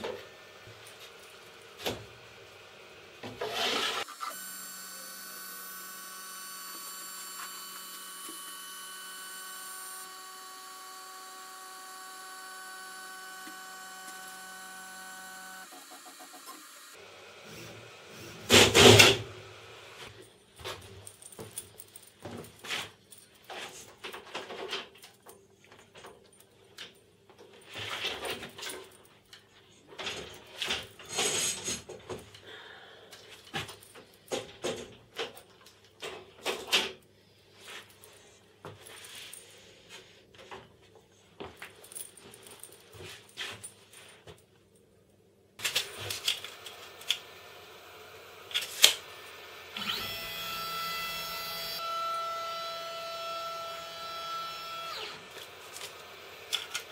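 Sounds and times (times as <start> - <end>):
stepper motors whining: 3.4 - 20.0, 45.6 - 56.9.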